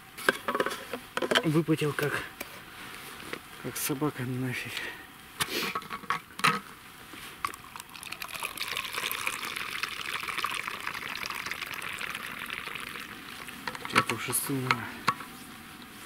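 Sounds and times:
liquid pouring from flask: 0:07.4 - 0:14.1.

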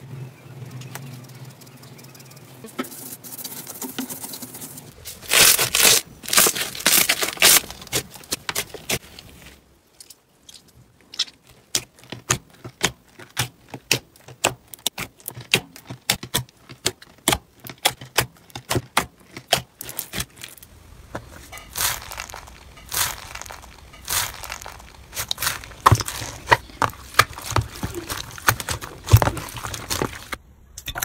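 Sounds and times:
hand scraping plastic tray: 0:11.5 - 0:30.4.

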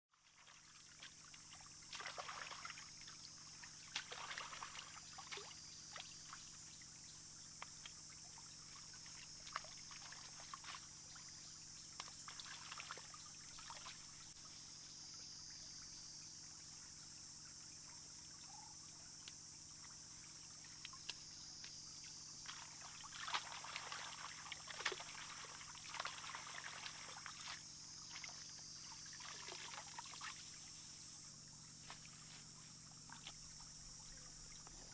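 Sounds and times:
stream trickling over rocks: 0:00.1 - 0:15.1, 0:15.7 - 0:34.9
leaves splashing in water: 0:00.2 - 0:06.4, 0:08.7 - 0:11.0, 0:12.0 - 0:14.1, 0:22.4 - 0:30.6.

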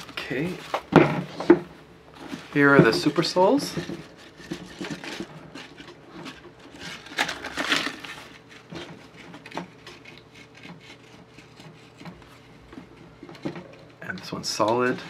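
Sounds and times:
cardboard tag rustle: 0:02.2 - 0:10.9.

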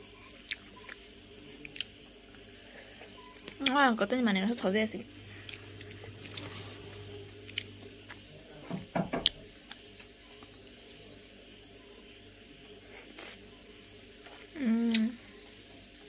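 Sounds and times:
insect trilling: 0:00.0 - 0:16.0.

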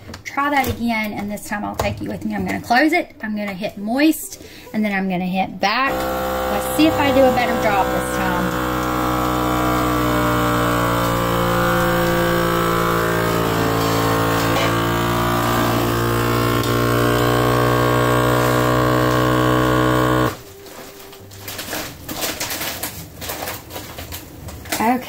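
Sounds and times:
vacuum sealer pump running: 0:05.9 - 0:20.8.

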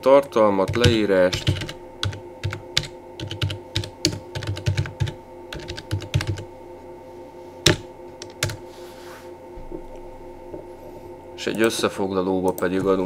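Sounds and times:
keyboard typing: 0:00.6 - 0:06.5, 0:07.6 - 0:08.6.

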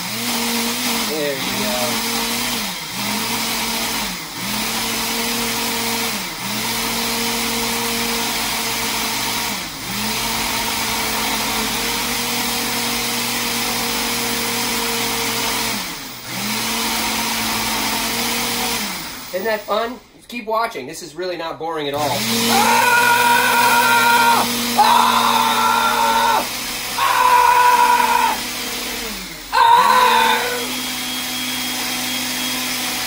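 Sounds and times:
blender motor running: 0:00.0 - 0:19.8, 0:22.0 - 0:33.0.

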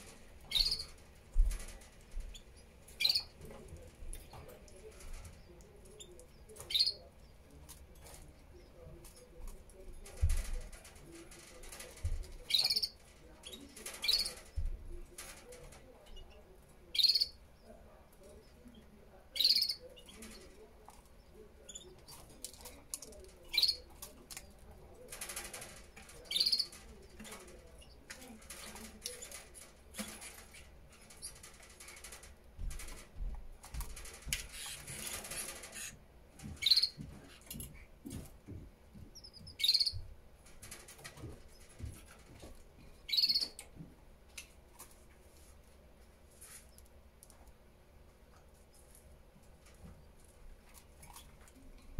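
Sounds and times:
canary chirping: 0:00.0 - 0:01.0, 0:01.6 - 0:09.4, 0:11.0 - 0:32.9, 0:33.7 - 0:37.9, 0:39.1 - 0:40.1, 0:42.9 - 0:43.7
rustling: 0:44.4 - 0:47.6.

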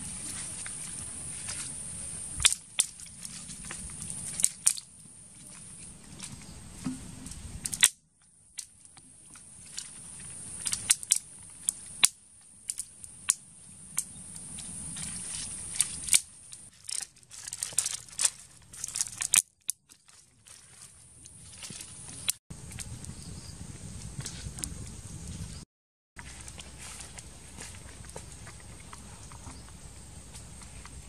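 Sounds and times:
wooden stick clicking and scraping: 0:02.4 - 0:05.8, 0:06.8 - 0:08.0, 0:08.6 - 0:22.9.

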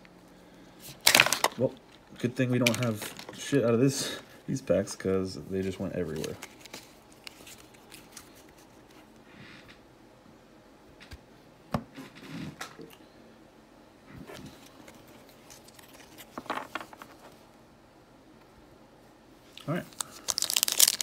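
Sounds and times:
cards tapping and rustling: 0:02.6 - 0:03.4, 0:06.1 - 0:08.6, 0:14.4 - 0:17.4.

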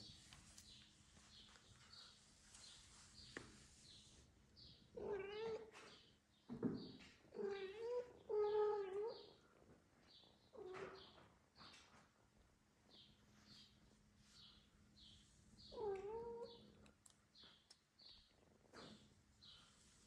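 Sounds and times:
cat meowing: 0:05.0 - 0:05.7.

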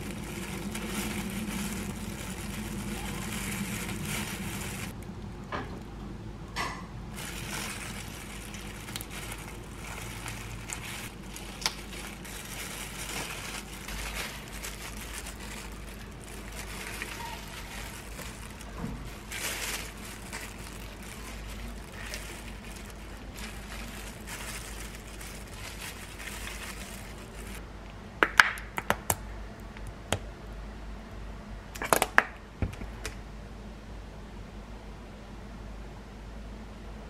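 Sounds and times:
plastic glove rustling: 0:00.0 - 0:05.0, 0:07.1 - 0:27.6.

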